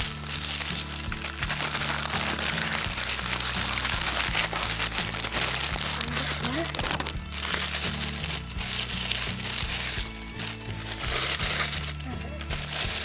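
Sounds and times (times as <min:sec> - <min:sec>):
background music with bass: 0:00.0 - 0:13.0
paper packaging crinkling: 0:00.0 - 0:13.0.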